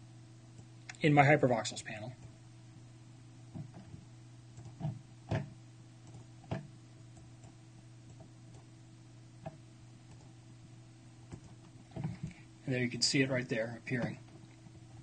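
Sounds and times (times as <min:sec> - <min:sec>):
steady low hum: 0:00.0 - 0:15.0
computer mouse clicks: 0:04.6 - 0:05.4, 0:06.0 - 0:08.7, 0:09.4 - 0:10.3, 0:11.3 - 0:12.4.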